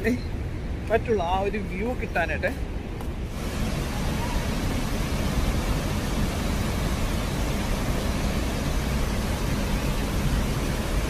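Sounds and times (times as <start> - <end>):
waterfall roaring: 3.2 - 11.0.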